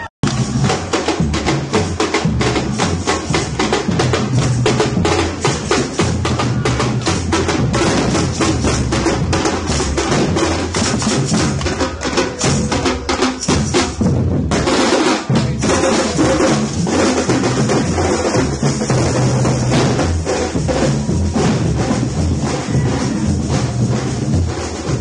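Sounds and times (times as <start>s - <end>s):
bass drums booming: 0.2s - 25.0s.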